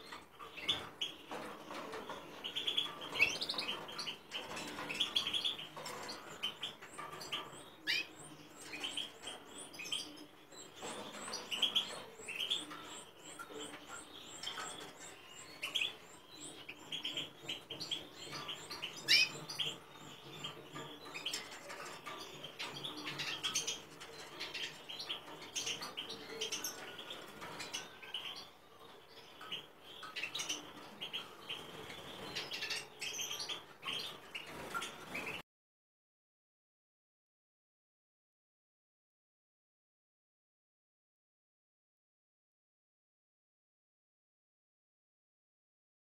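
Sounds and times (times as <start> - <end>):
finches chirping: 0.0 - 35.4.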